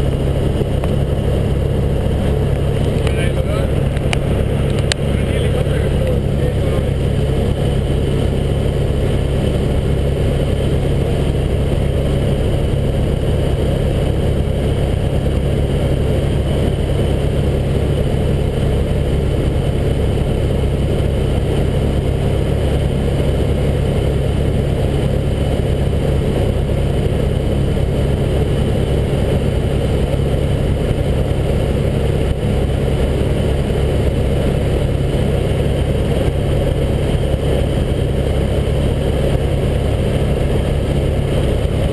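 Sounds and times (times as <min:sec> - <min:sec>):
helicopter engine and rotor drone: 0:00.0 - 0:41.9.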